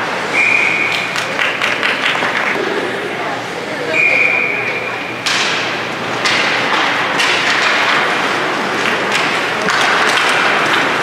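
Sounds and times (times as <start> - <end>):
puck or stick thuds: 5.2 - 11.0
skate blades scraping ice: 7.2 - 11.0.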